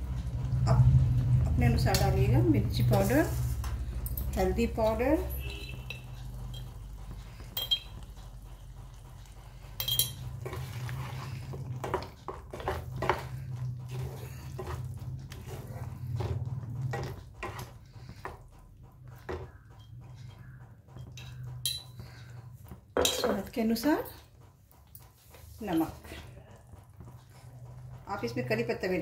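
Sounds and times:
low hum: 0.0s - 25.1s
utensils knocking against pan: 9.7s - 10.6s, 19.1s - 22.2s, 22.9s - 24.1s
spatula scraping a metal pan: 10.4s - 18.4s.

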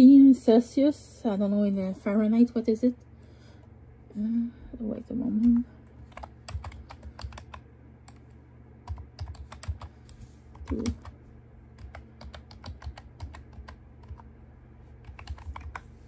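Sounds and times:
keyboard typing clicks: 5.4s - 11.2s, 11.8s - 14.3s, 15.0s - 15.9s.

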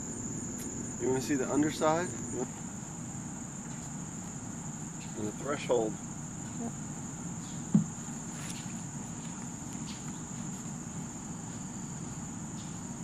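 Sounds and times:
insects chorusing: 0.0s - 13.0s
short low knock: 7.7s - 8.0s.

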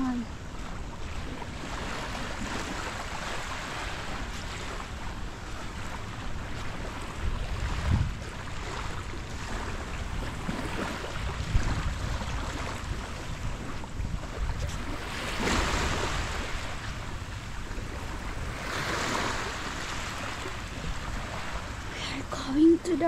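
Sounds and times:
wind buffeting microphone: 0.0s - 23.0s
surf washing on beach: 1.0s - 23.0s.

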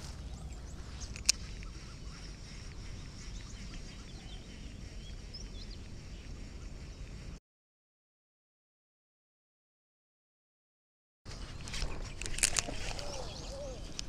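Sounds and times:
birds chirping: 0.0s - 7.4s, 11.3s - 14.0s.

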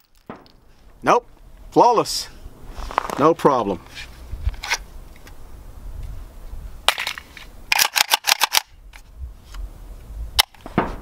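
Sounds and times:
sharp metallic gun clicks: 6.9s - 8.7s, 10.4s - 10.6s.

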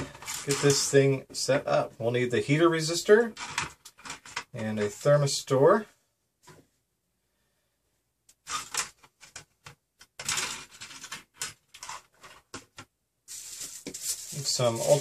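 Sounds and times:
metal parts rattling in plastic bin: 0.0s - 0.9s, 3.4s - 4.5s, 8.5s - 9.4s, 10.2s - 12.5s
soft rustle: 13.3s - 15.0s.

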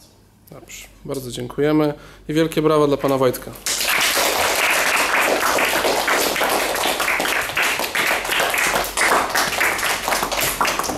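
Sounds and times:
children applauding: 3.7s - 10.9s.

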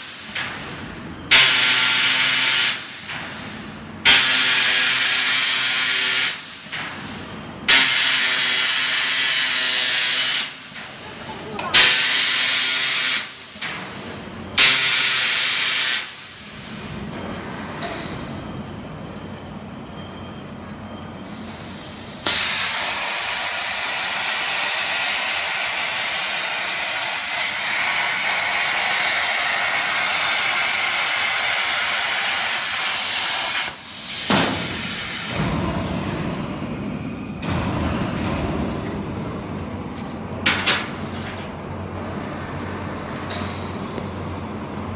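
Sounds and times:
plasma torch hissing: 21.2s - 36.4s.

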